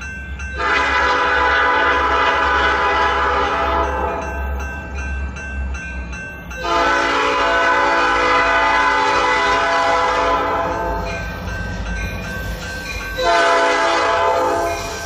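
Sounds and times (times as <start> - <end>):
locomotive air horn blast: 0.6 - 4.2, 6.6 - 10.8, 13.2 - 14.7.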